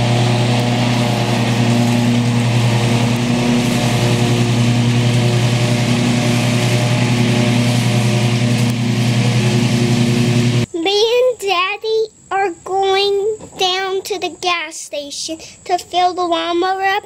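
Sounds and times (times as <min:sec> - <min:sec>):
riding lawn mower engine: 0:00.0 - 0:10.7.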